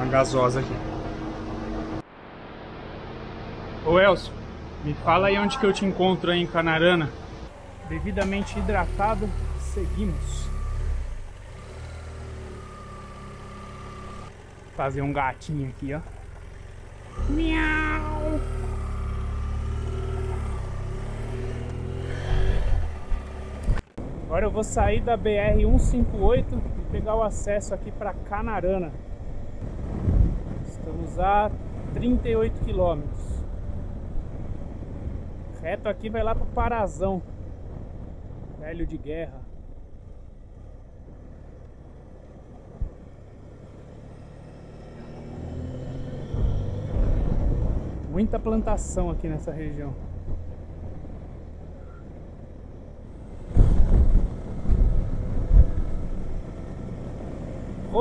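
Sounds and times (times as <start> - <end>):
motorcycle engine rumbling: 0.0 - 2.1, 2.9 - 58.0
motorcycle engine running: 7.3 - 24.0
man imitating cat meow: 17.3 - 18.5.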